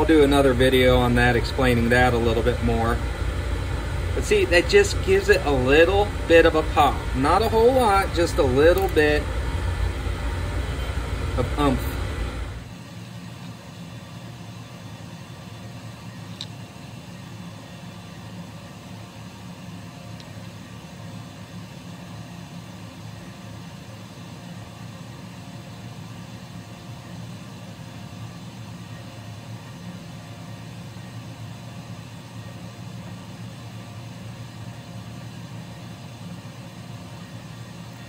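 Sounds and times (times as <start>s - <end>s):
air compressor humming: 0.0s - 13.0s.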